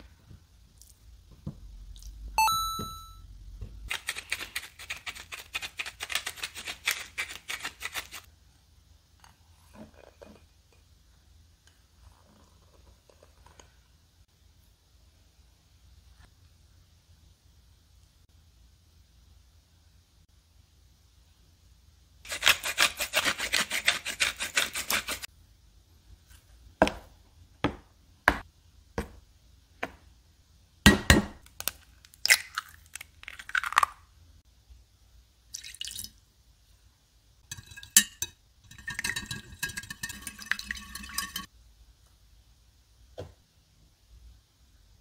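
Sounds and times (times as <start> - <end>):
stirring dry flour mix: 22.3 - 25.3
whisk beating eggs in glass dish: 22.3 - 25.3, 37.5 - 41.5.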